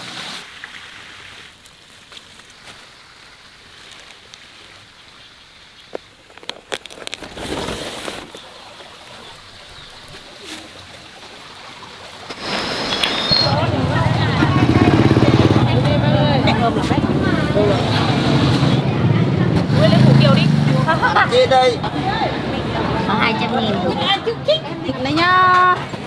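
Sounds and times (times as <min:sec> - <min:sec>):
rustling with sharp clicks: 0:05.9 - 0:09.2
birds calling: 0:07.6 - 0:14.8.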